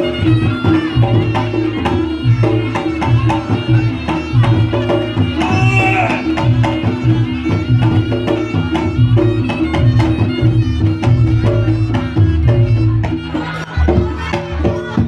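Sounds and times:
hand drums fast pattern: 0.0 - 15.0
reedy wind instrument phrase: 5.4 - 6.4.

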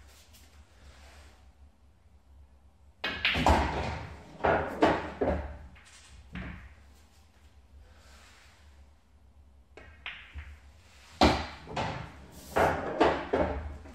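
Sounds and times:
cue striking ball: 3.0 - 5.5, 11.2 - 13.9
pool balls clicking: 3.0 - 6.8, 9.7 - 13.9
ball rattling inside table: 9.8 - 13.9.

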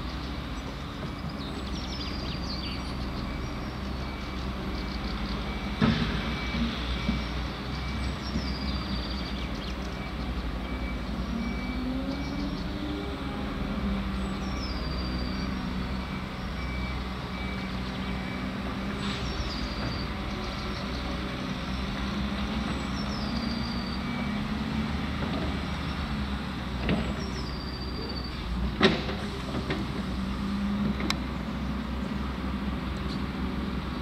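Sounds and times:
diesel machinery running: 0.0 - 34.0
reversing alarm beeping: 5.4 - 8.2, 10.0 - 12.6, 15.0 - 18.6, 23.0 - 25.0.

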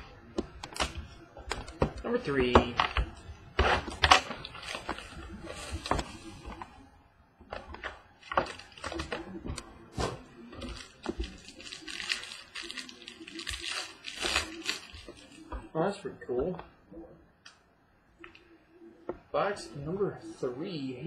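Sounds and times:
plastic wrap tearing and crinkling: 3.6 - 6.2, 7.8 - 9.3, 10.0 - 15.5.

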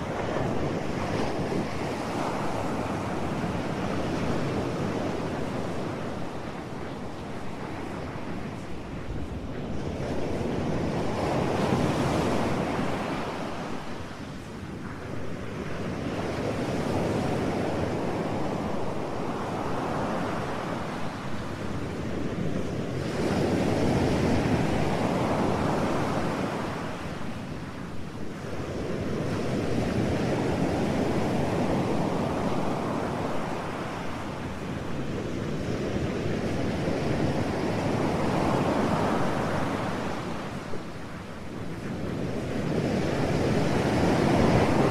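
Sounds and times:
ocean waves surging: 37.0 - 44.9.

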